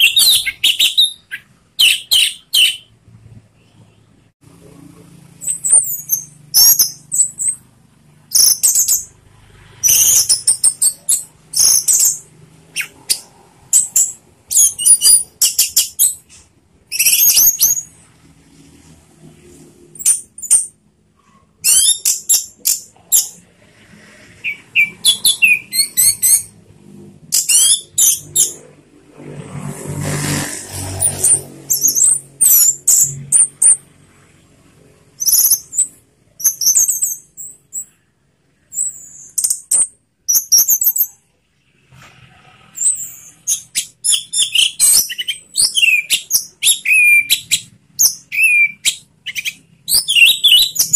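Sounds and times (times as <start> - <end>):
bird singing whistles and trills: 0.0 - 2.9, 5.4 - 7.6, 8.3 - 9.1, 9.8 - 18.0, 21.6 - 23.4, 24.4 - 26.6, 27.3 - 28.6, 35.2 - 38.0, 38.7 - 41.2, 42.8 - 50.9.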